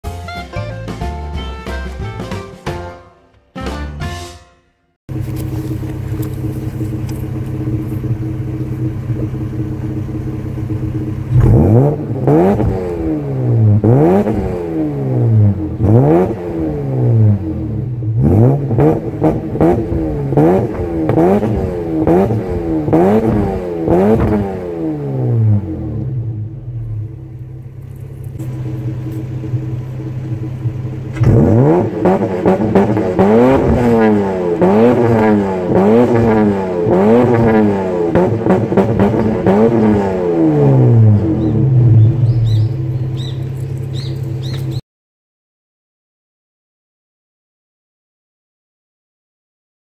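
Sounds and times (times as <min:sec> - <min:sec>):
car engine revving and idling: 0:05.1 - 0:44.8.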